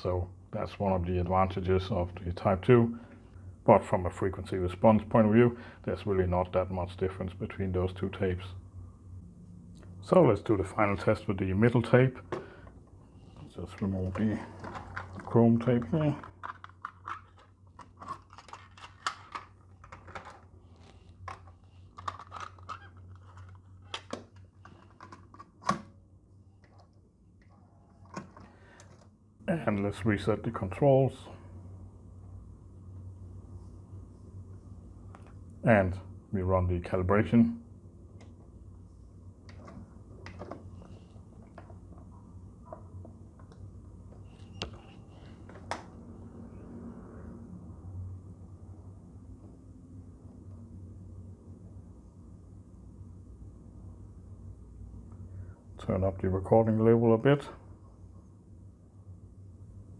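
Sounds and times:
cassette deck low hum: 0.0 - 30.6
plastic cassette cases clacking: 14.1 - 20.5, 21.3 - 25.8.

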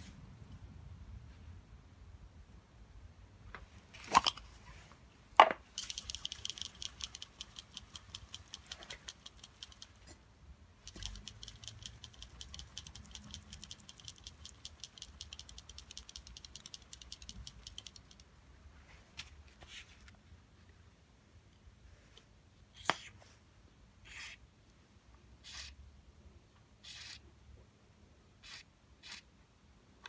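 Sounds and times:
aerosol can rattling when shaken: 5.7 - 10.1, 10.8 - 18.3.

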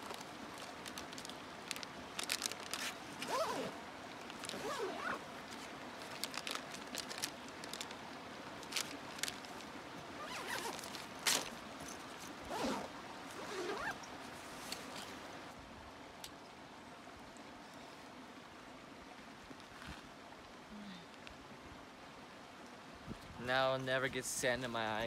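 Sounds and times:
plastic packet rustling: 0.0 - 11.6
backpack zipper zipping: 2.8 - 3.8, 4.5 - 5.2, 10.2 - 11.5, 12.4 - 14.0.

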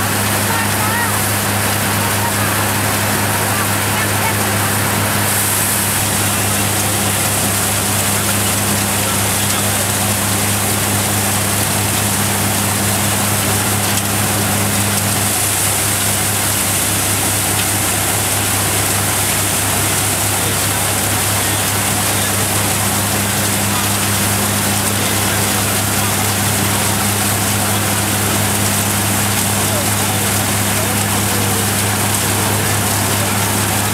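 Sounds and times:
thresher running: 0.0 - 33.9.

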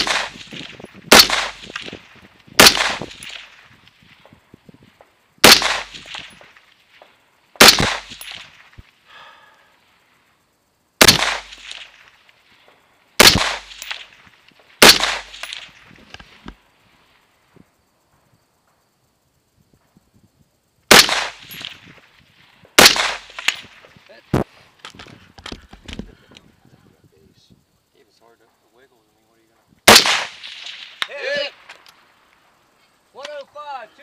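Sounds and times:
rifle shots with echo: 0.0 - 3.6, 5.4 - 6.6, 7.6 - 8.6, 11.0 - 12.1, 13.2 - 14.2, 14.8 - 15.8, 20.9 - 21.9, 22.8 - 23.8, 29.9 - 31.0.

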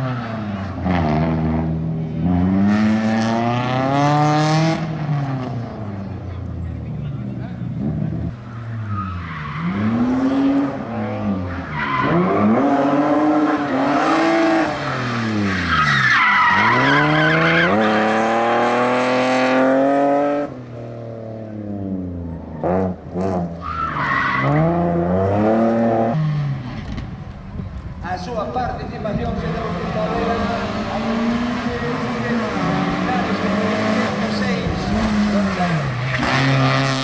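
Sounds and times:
rally car engine revving: 0.0 - 27.2, 29.2 - 37.0.

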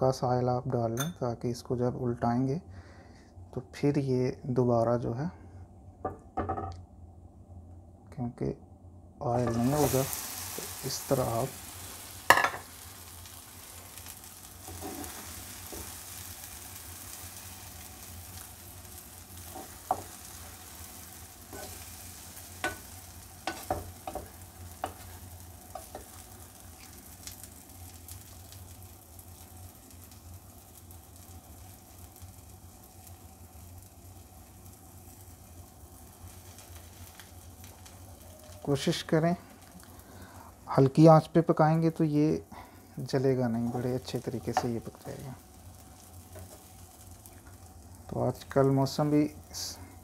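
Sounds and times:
omelette sizzling in oil: 9.4 - 50.0
spatula scraping a pan: 14.6 - 16.0, 21.5 - 21.9.

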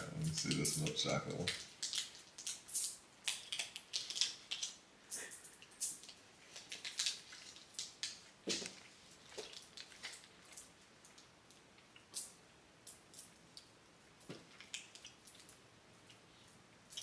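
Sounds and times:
wrapper crinkling: 0.2 - 10.7.

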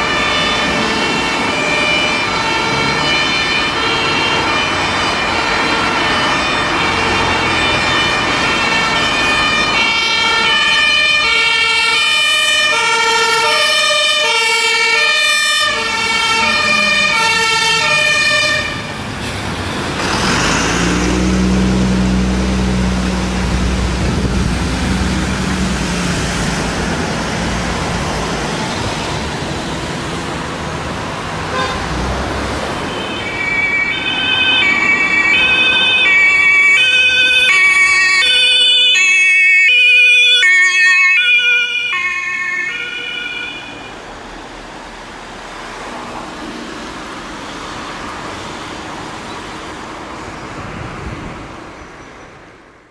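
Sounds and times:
two-tone fire engine siren: 0.0 - 19.2, 20.0 - 29.9, 32.6 - 44.7
diesel engine running: 15.7 - 30.2.

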